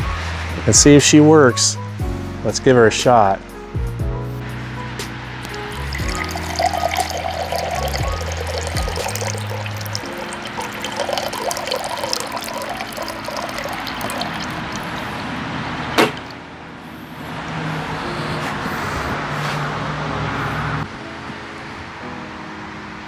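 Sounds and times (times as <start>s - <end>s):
water trickling into a mug: 5.5s - 15.2s
sharp knock: 16.0s - 16.3s.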